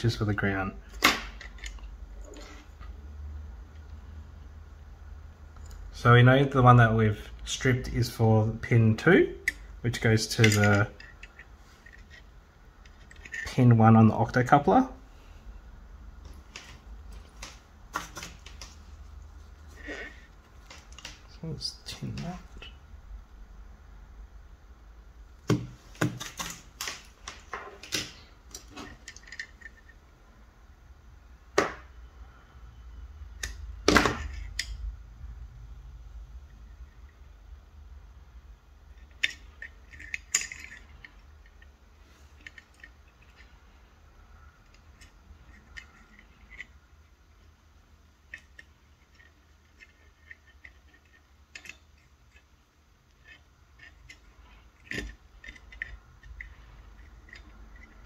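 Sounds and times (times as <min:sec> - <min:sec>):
low steady hum: 0:00.0 - 0:58.0
hand tools clicking and tapping: 0:48.3 - 0:52.5, 0:53.2 - 0:58.0.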